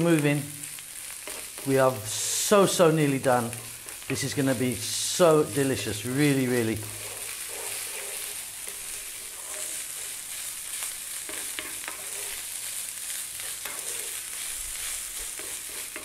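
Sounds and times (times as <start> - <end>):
rice sizzling in a pan: 0.0 - 16.0
wooden spatula scraping pan: 5.9 - 16.0.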